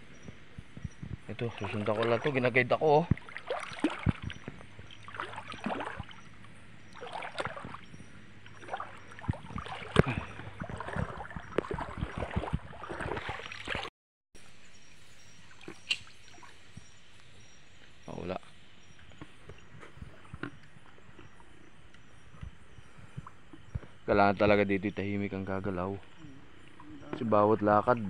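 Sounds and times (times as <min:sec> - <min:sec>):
water sloshing around legs: 0:00.2 - 0:13.9.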